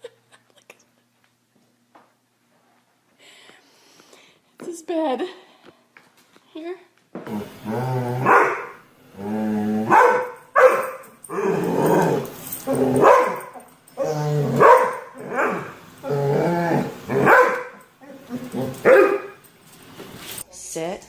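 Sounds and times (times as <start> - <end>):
dog growling: 7.3 - 10.2, 11.2 - 19.4
dog barking: 8.2 - 8.8, 9.9 - 11.2, 13.0 - 13.6, 14.6 - 15.7, 17.1 - 17.8, 18.8 - 19.4.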